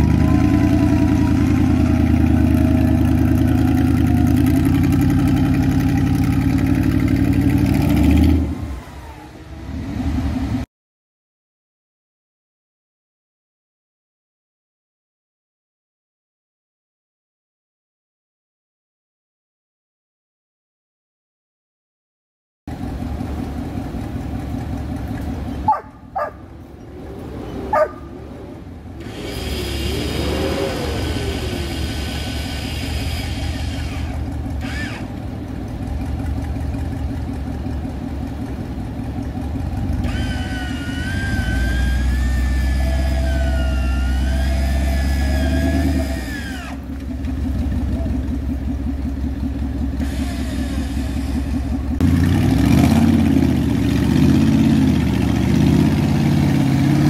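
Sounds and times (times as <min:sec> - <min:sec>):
engine running and revving: 0:00.0 - 0:10.7, 0:22.7 - 0:57.0.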